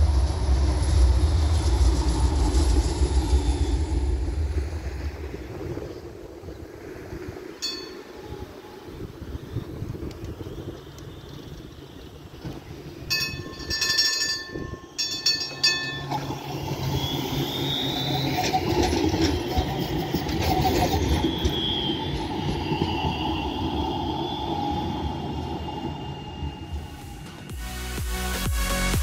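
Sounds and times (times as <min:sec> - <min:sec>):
tram wheels squealing: 0:00.0 - 0:05.0, 0:07.4 - 0:27.5
tram rolling on rails: 0:00.0 - 0:27.5
tram warning bell: 0:07.6 - 0:09.0, 0:13.0 - 0:24.2.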